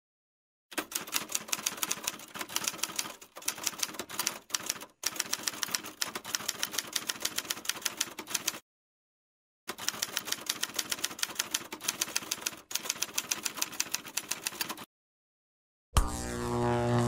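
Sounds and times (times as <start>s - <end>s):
typewriter keys typing: 0.8s - 8.6s, 9.7s - 14.9s.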